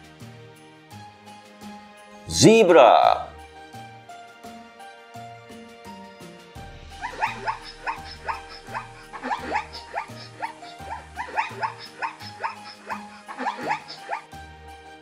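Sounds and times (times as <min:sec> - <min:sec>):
zebra yelping barks: 0:07.0 - 0:14.3.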